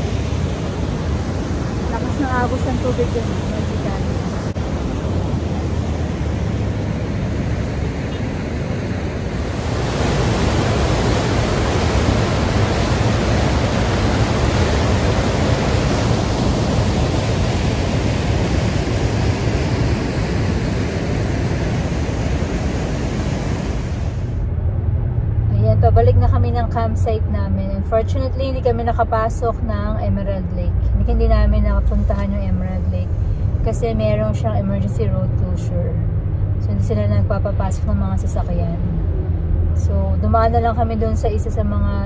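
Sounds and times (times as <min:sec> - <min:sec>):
water rushing over rocks: 0:09.2 - 0:19.5.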